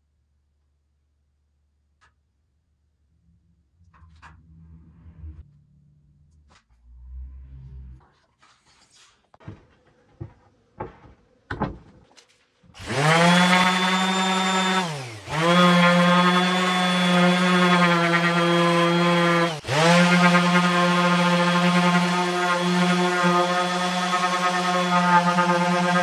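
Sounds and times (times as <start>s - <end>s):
orbital sander whining: 12.8s - 26.0s.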